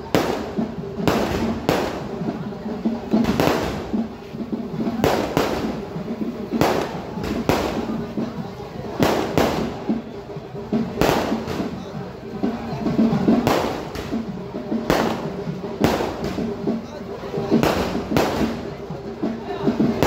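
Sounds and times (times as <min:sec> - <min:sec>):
firework shells bursting: 0:04.8 - 0:08.0, 0:13.3 - 0:16.6, 0:17.5 - 0:18.8.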